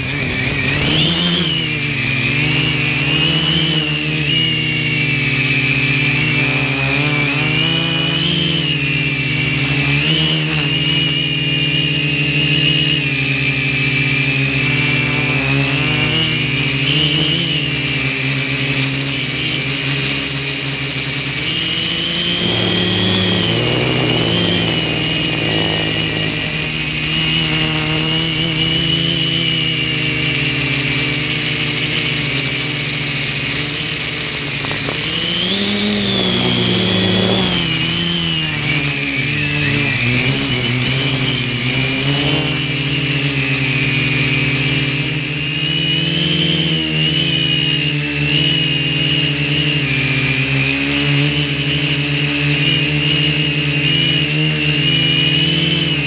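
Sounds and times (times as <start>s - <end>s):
drone motors buzzing whine: 0.0s - 56.0s.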